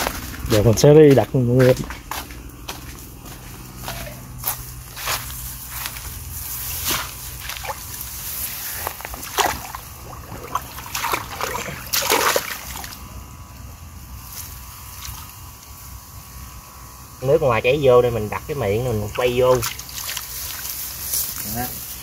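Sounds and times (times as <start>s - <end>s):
water splashing and sloshing: 6.8s - 13.1s, 19.4s - 21.0s.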